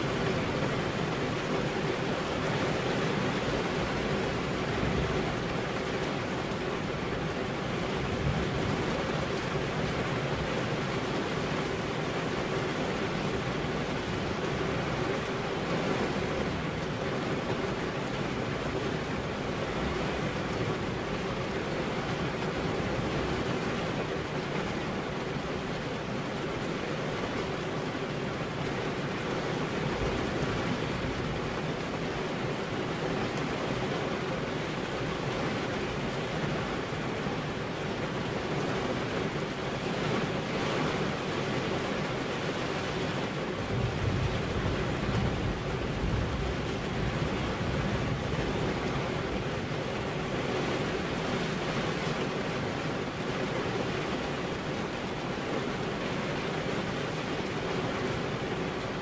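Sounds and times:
steady rain falling: 0.0 - 59.0.

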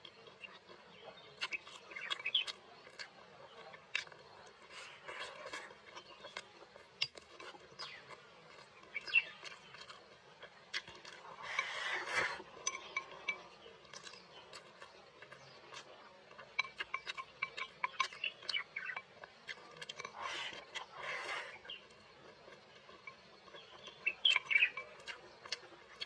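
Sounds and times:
chewing: 0.0 - 26.0
chopsticks scraping bowl: 11.0 - 14.6.

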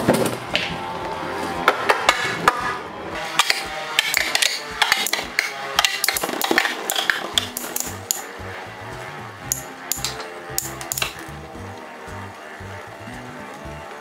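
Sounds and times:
spinning tops clicking together: 3.4 - 8.4, 9.4 - 11.4.

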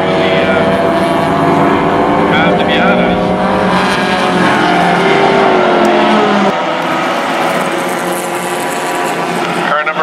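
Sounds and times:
race car engines revving: 0.0 - 10.0.

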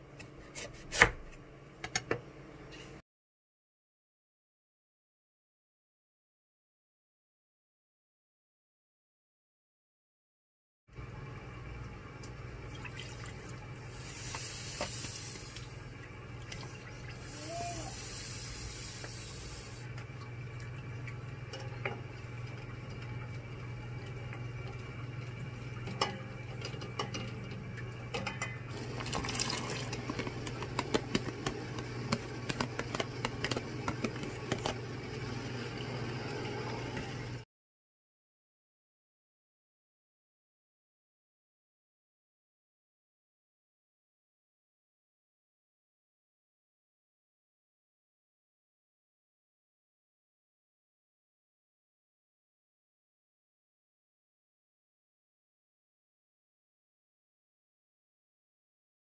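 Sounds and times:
hiss: 13.9 - 15.7, 17.2 - 19.9
liquid swishing: 28.7 - 37.3
ladle clicking against pot: 29.9 - 34.8.

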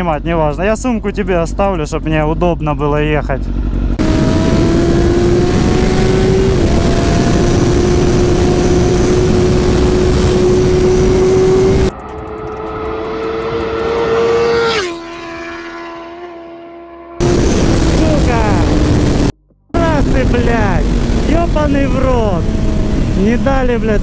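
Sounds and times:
motorcycle engine at high revs: 3.4 - 23.9
wind noise: 3.5 - 14.4, 17.2 - 24.0
motorcycle passing by: 3.5 - 19.3.

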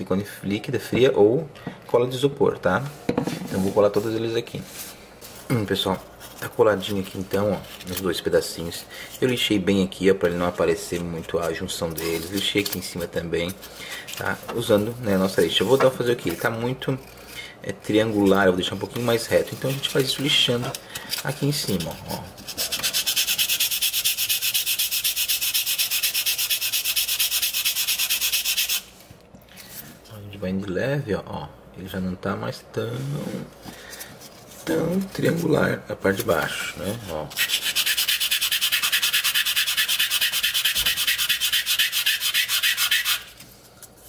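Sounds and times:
sandpaper scratching on foam: 21.3 - 28.9, 37.3 - 43.4.

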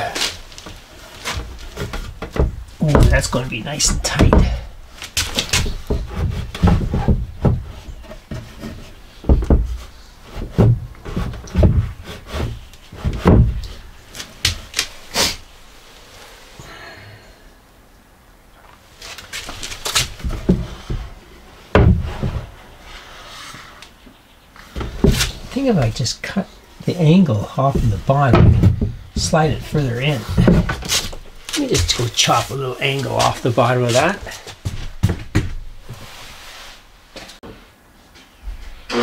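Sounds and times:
wooden board knocking: 1.4 - 4.7, 9.3 - 9.8, 21.8 - 22.5, 27.7 - 31.2.

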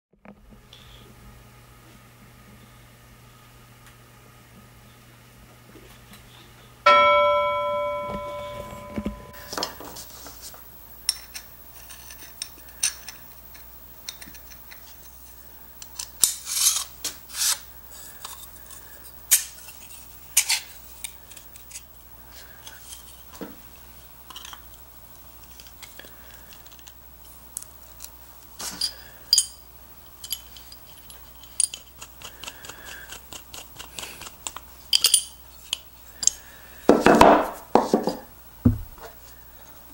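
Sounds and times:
bell-like ringing tone: 6.9 - 9.4
metal parts clinking: 28.8 - 32.0, 34.9 - 36.3.

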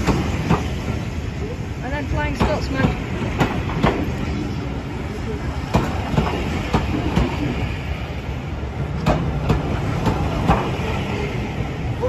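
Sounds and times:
train coaches rumbling: 0.0 - 12.0.

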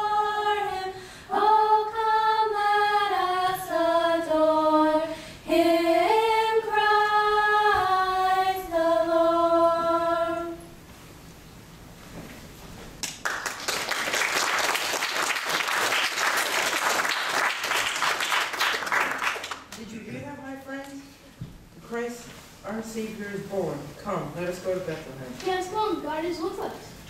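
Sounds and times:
girls singing in unison: 0.0 - 10.8
audience applause: 13.0 - 19.7.

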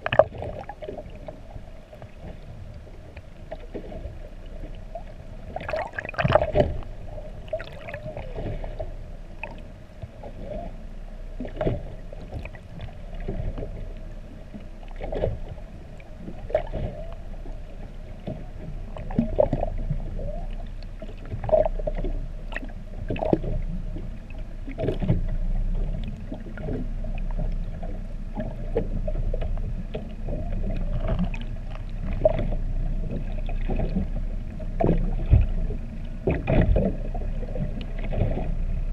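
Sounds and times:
low rumble of the sea: 0.0 - 38.9.

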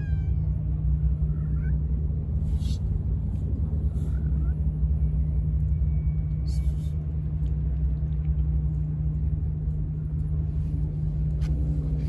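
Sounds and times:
faint cat mews: 0.0 - 0.5
steady low rumble: 0.0 - 12.0.

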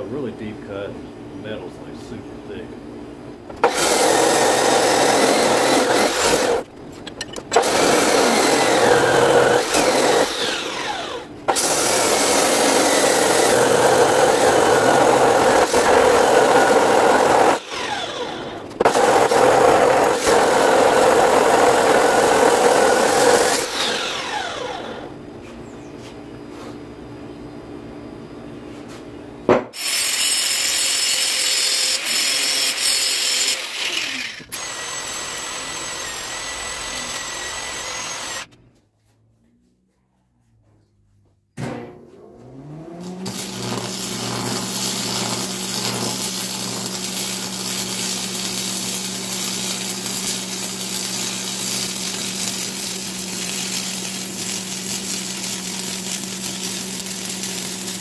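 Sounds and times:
chop saw cutting steel: 3.5 - 6.6, 7.4 - 25.0, 29.7 - 38.6, 43.0 - 58.0
angle grinder grinding steel: 3.6 - 6.6, 7.2 - 25.1, 29.8 - 38.6, 42.9 - 58.0.

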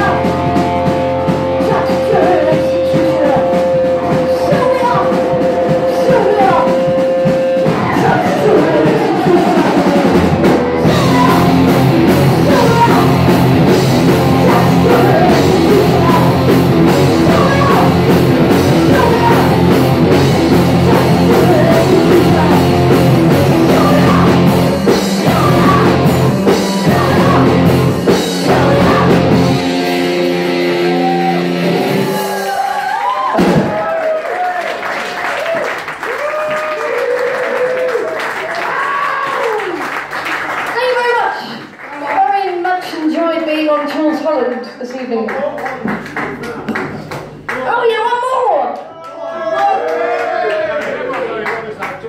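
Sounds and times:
punk rock band playing: 0.0 - 34.0
woman singing: 1.6 - 6.9, 7.7 - 9.8, 10.8 - 11.7, 12.4 - 13.3, 14.2 - 16.5, 17.1 - 18.1, 18.7 - 19.8, 20.7 - 29.6.

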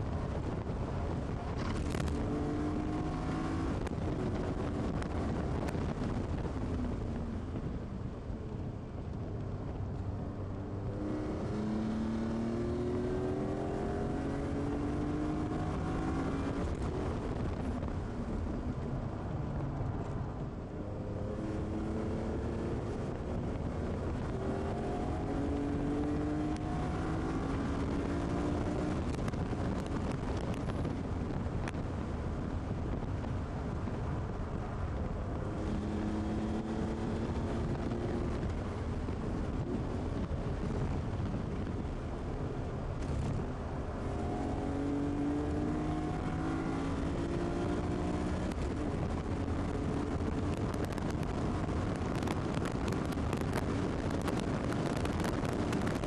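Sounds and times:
road and wind noise: 0.0 - 56.0
car engine revving: 20.8 - 30.6, 35.4 - 38.8, 43.0 - 56.0.

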